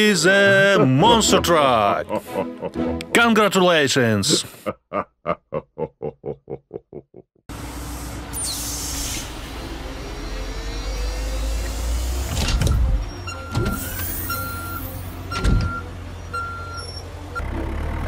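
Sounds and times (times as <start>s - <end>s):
hiss: 7.5s - 12.3s
hydraulic whine: 7.5s - 17.8s
excavator engine rumble: 7.5s - 18.0s
warning beep: 13.2s - 15.8s.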